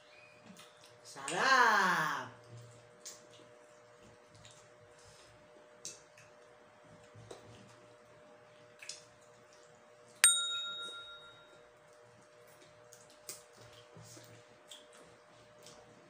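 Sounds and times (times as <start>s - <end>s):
faint steady hum: 0.0s - 16.0s
soft eating smacks: 2.4s - 10.0s, 11.9s - 16.0s
metal spoon ding: 10.2s - 11.6s.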